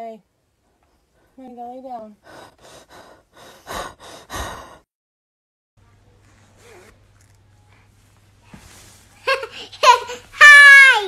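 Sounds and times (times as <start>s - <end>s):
person gasping: 2.2s - 4.9s
faint low hum: 5.8s - 10.4s.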